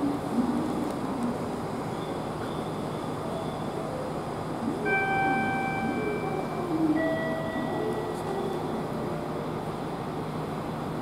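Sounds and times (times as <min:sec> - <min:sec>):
steady low hum: 0:00.0 - 0:11.0
electronic two-note chime: 0:04.8 - 0:08.9.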